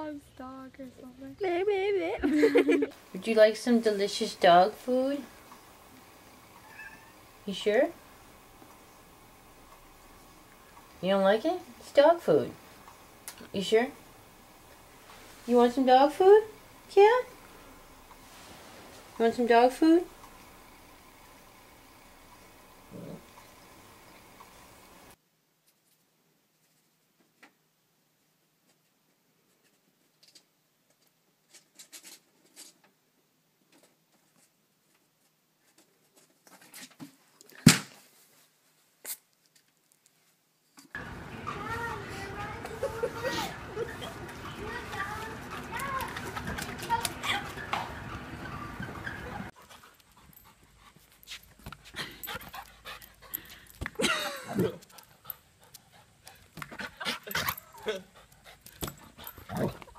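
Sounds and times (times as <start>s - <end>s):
dog panting and whimpering: 41.0s - 53.8s, 54.6s - 59.9s.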